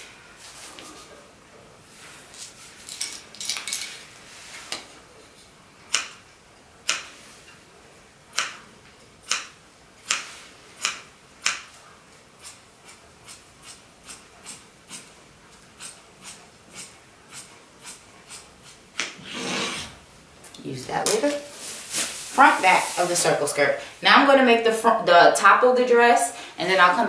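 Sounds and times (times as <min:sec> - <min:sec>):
fabric rustling: 0:21.2 - 0:23.7.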